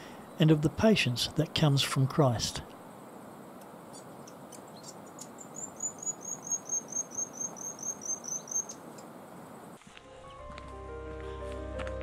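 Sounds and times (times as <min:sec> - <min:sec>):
insect-like hiss: 0:02.9 - 0:09.9.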